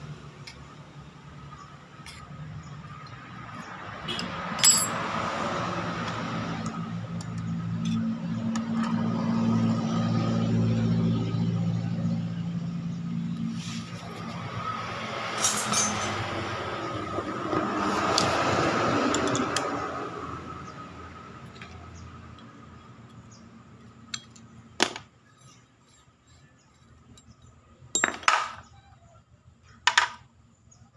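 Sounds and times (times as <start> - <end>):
engine noise: 0.0 - 27.3
metal clinks and knocks: 4.6 - 5.0, 15.4 - 16.3, 26.7 - 28.6.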